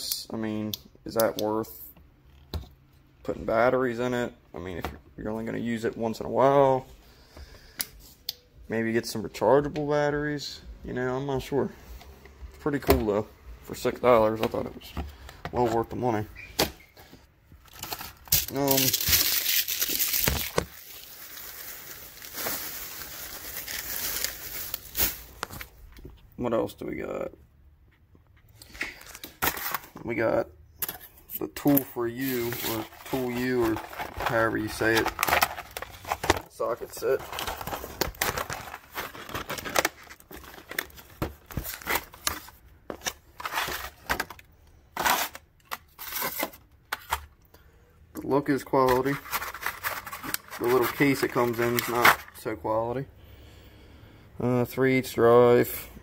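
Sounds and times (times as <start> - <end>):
plastic packaging crinkling: 17.7 - 25.7, 32.2 - 44.4, 48.8 - 52.4.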